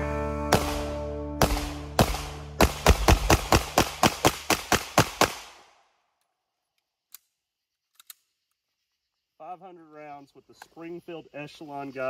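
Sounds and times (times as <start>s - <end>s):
pistol shots rapid fire: 0.5s - 5.8s.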